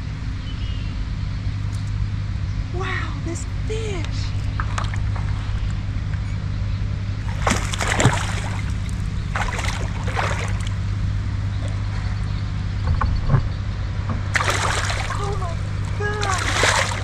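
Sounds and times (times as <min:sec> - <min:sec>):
steady low rumble: 0:00.0 - 0:17.0
water splashing beside kayak: 0:07.2 - 0:10.9, 0:14.2 - 0:17.0.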